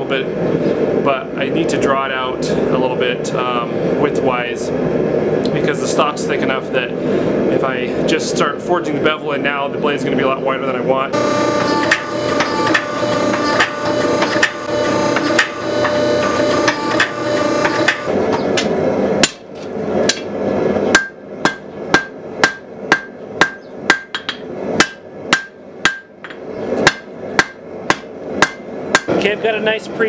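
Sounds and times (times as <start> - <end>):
machine hum with knocks: 11.1 - 20.3
hammer striking metal on anvil: 11.2 - 19.4, 20.9 - 29.2.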